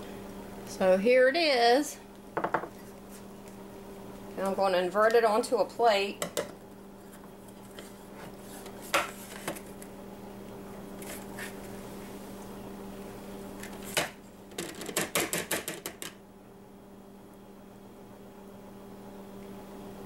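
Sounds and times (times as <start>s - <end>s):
steady low hum: 0.0s - 14.6s
ceramic mug knocking on plate: 2.4s - 2.7s.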